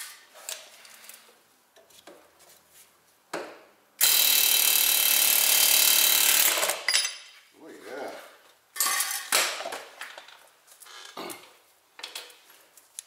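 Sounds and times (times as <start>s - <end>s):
tools and steel parts clinking: 6.5s - 7.4s, 8.8s - 9.4s.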